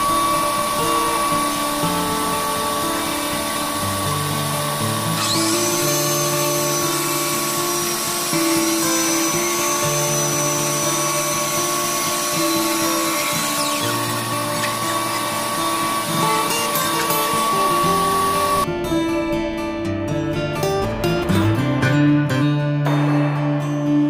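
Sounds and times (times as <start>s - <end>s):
power tool whining: 0.0s - 18.7s
background music: 0.0s - 24.0s.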